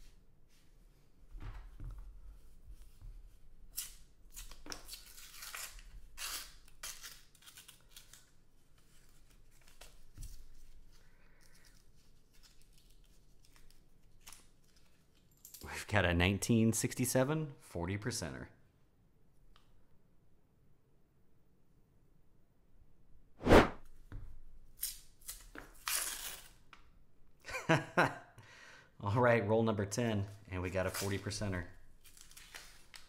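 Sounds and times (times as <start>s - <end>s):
paper wrapper tearing and crinkling: 3.8s - 10.2s, 24.8s - 26.6s, 32.0s - 33.0s.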